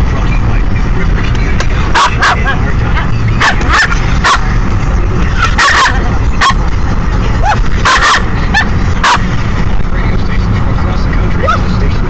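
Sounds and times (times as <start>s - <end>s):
moving car rumble: 0.0s - 12.0s
dog yapping: 2.0s - 2.5s, 3.4s - 4.5s, 5.4s - 6.6s, 7.4s - 9.3s.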